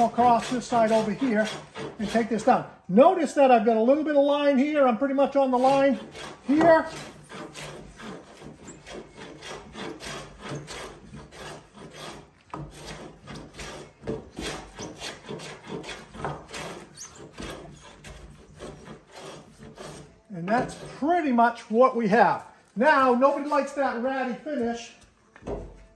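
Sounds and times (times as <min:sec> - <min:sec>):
hand plane rasping on wood: 0:00.0 - 0:02.5, 0:05.6 - 0:21.1.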